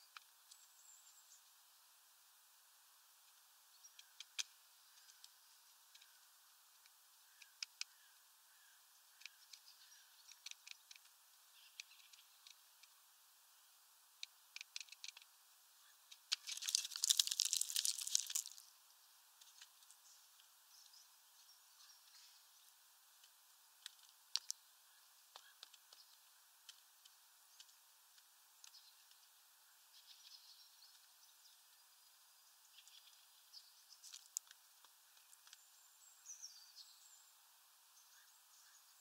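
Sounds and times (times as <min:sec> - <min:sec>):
woodpecker pecking seeds: 0:03.3 - 0:08.2, 0:09.0 - 0:13.0, 0:14.1 - 0:18.7, 0:23.1 - 0:24.7, 0:32.8 - 0:35.7
rustling: 0:16.1 - 0:18.7.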